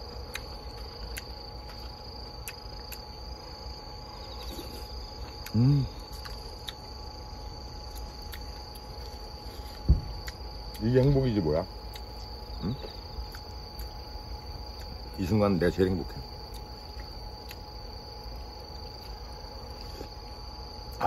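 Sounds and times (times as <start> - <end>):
crickets chirring: 0.0 - 21.0
man humming: 5.5 - 6.0.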